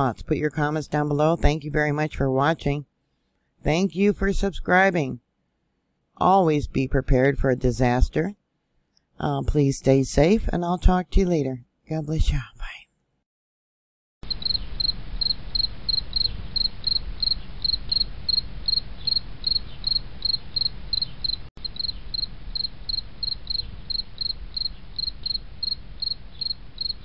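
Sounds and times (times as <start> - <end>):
crickets chirping: 14.2 - 27.0
low hiss and rumble: 21.6 - 27.0.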